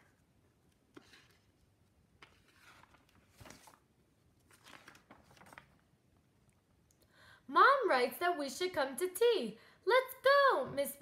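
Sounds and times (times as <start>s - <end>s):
book pages turning: 0.1s - 5.9s.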